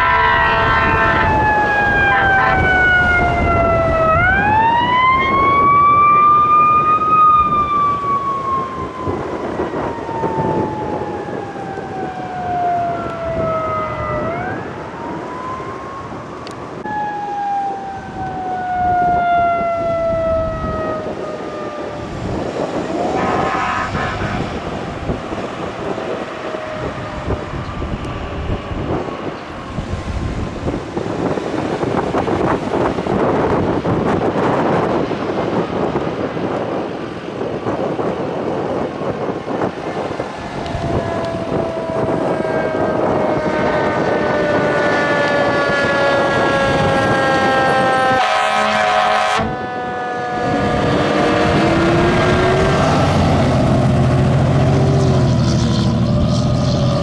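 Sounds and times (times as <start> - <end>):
horn blasts: 0.0 - 3.7, 22.8 - 25.2, 40.7 - 53.2
fire engine sirens wailing: 0.0 - 57.0
road traffic: 0.0 - 57.0.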